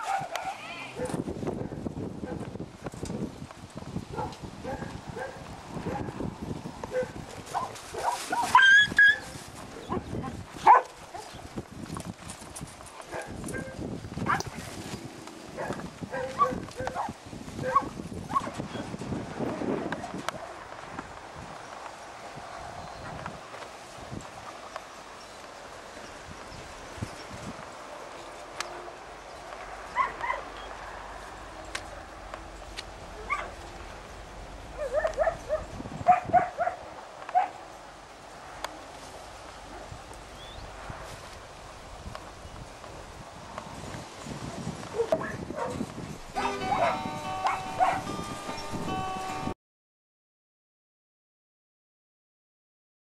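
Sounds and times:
dog barking: 0.0 - 2.4, 4.1 - 6.2, 6.9 - 9.2, 9.8 - 11.4, 13.1 - 14.5, 15.6 - 18.5, 30.0 - 30.5, 33.2 - 33.6, 34.8 - 37.6, 44.9 - 45.8, 46.4 - 48.1.

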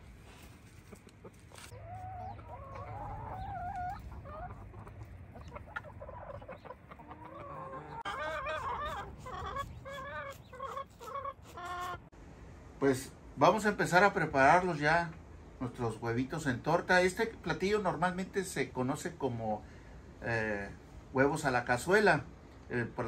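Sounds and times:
chickens clucking: 0.2 - 12.1
chicken wavering call: 0.9 - 12.1.

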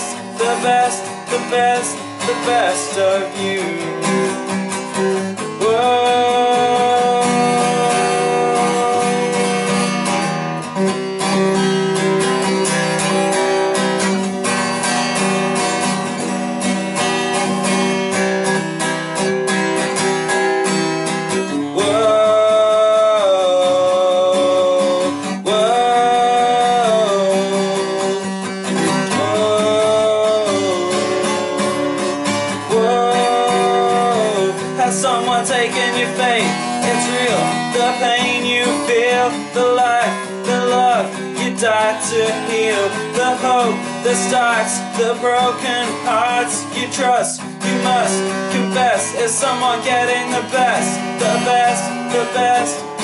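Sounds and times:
person singing wordless vocal: 0.0 - 10.1, 21.5 - 53.0
acoustic guitar strumming: 0.0 - 53.0.

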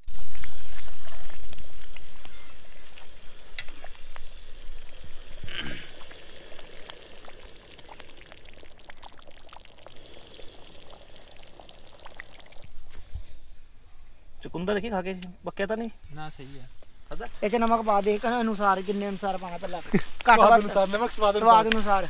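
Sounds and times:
curry bubbling and spattering: 3.7 - 12.9.

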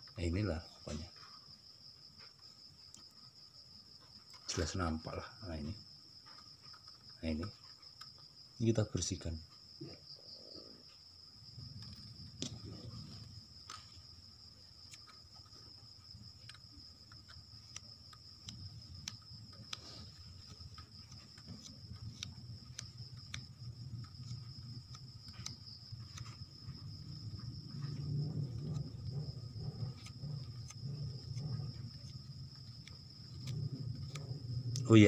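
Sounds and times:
crickets trilling: 0.0 - 35.0
fingers rubbing ribbon cable: 11.6 - 35.0.

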